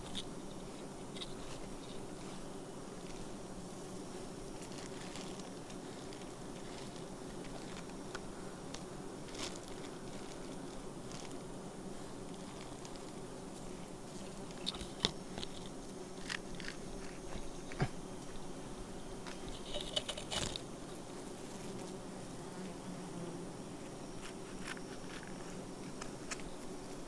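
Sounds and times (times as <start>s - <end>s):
leaves brushing microphone: 0.0s - 18.5s
bee swarm humming: 0.0s - 27.0s.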